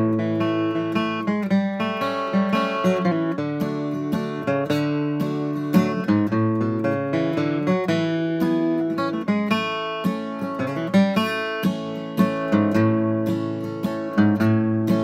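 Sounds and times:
acoustic guitar flatpicking: 0:00.0 - 0:15.0.

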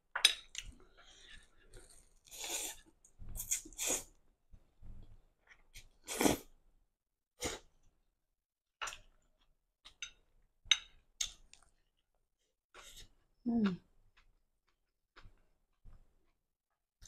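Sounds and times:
person slurping noodles: 0:01.0 - 0:04.1, 0:06.0 - 0:06.5.

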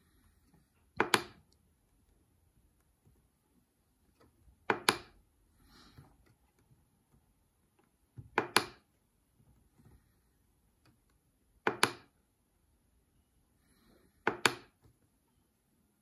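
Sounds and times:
keypad buttons clicking: 0:00.9 - 0:01.6, 0:04.6 - 0:05.2, 0:08.3 - 0:08.9, 0:10.9 - 0:12.2, 0:14.2 - 0:14.8.

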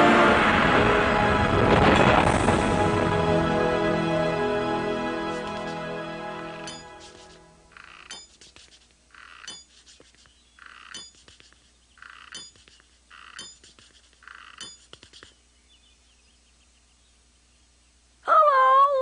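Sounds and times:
shuffling footstep scuffs: 0:05.4 - 0:05.8, 0:06.8 - 0:07.4.

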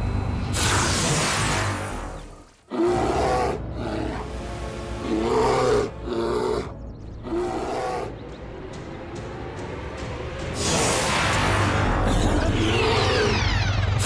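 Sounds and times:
background music: 0:00.6 - 0:14.0
cartoon bear roaring: 0:12.0 - 0:13.6.

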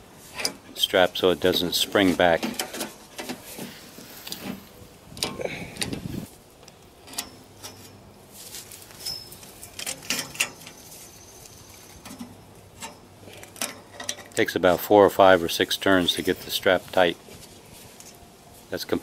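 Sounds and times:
metal scraping: 0:07.0 - 0:14.4.

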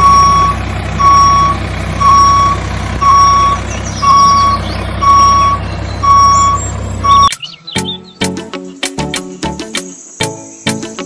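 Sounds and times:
low engine rumble: 0:00.0 - 0:07.3
reversing alarm beeping: 0:00.0 - 0:07.3.

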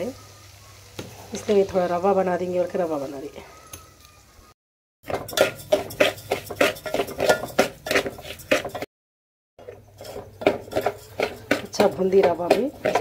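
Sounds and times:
metal spoon scraping a pot: 0:05.1 - 0:08.9, 0:09.6 - 0:13.0.

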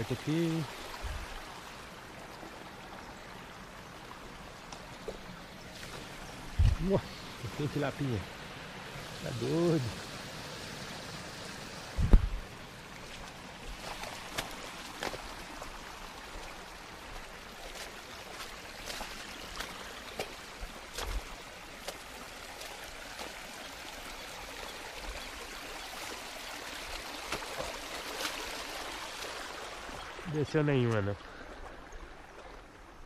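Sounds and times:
stream flowing: 0:00.0 - 0:33.0.

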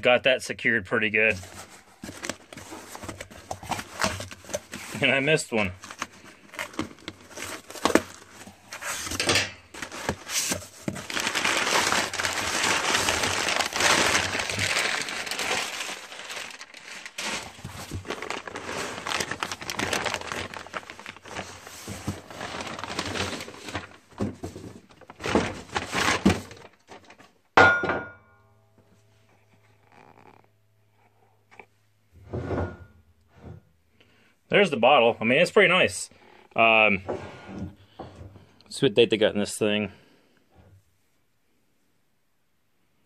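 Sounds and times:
plastic bag crinkling: 0:01.5 - 0:27.2
cardboard box tearing: 0:09.8 - 0:24.1
metal bottle clunk on bench: 0:27.6 - 0:28.2.

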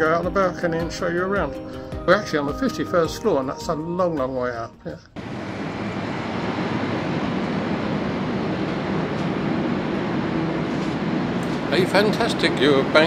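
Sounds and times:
distant city traffic hum: 0:05.2 - 0:13.0.

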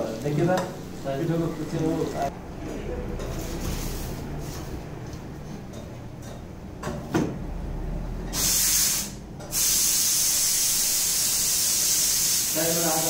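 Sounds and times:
loud kitchen hiss: 0:00.0 - 0:02.4, 0:03.2 - 0:04.8, 0:08.3 - 0:13.0.

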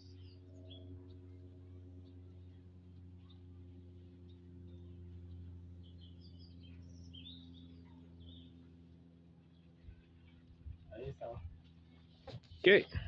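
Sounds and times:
bird chirps: 0:00.0 - 0:02.6, 0:03.2 - 0:10.8
faint low hum: 0:00.0 - 0:13.0.

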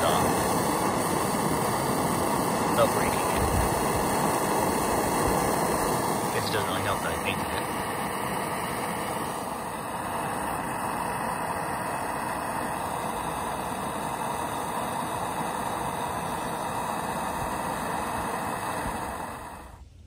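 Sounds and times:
propane torch flame rushing: 0:00.0 - 0:20.0.

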